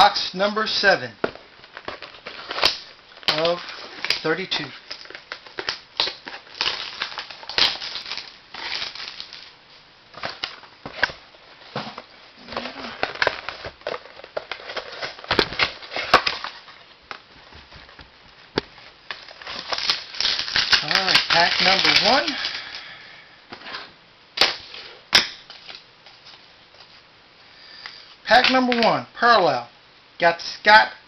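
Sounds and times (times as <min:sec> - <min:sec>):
plastic wrapping crinkling and tearing: 0:01.6 - 0:23.0, 0:24.4 - 0:27.0.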